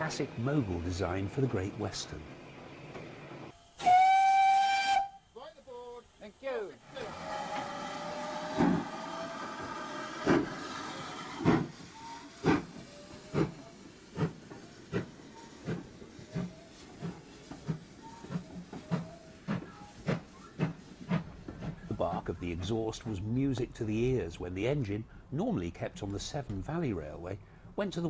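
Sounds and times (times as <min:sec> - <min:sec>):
steam locomotive exhaust beats: 0:03.5 - 0:06.2, 0:07.0 - 0:25.2
steam hissing: 0:03.5 - 0:24.1
steam locomotive whistle: 0:03.8 - 0:05.4.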